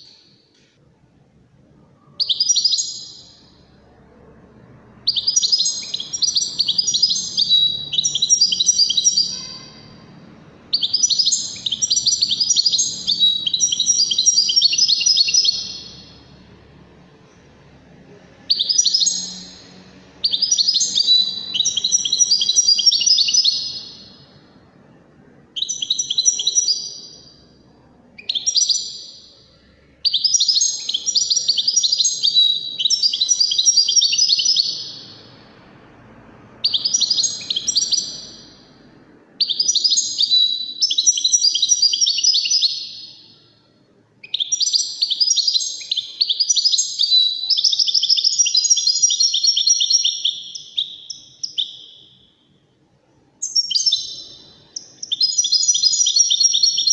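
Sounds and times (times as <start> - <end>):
goldfinch singing: 2.2 - 3.7, 5.0 - 16.6, 18.4 - 24.4, 25.6 - 27.4, 28.2 - 29.4, 30.0 - 35.4, 36.6 - 38.7, 39.4 - 43.4, 44.2 - 52.2, 53.4 - 56.9.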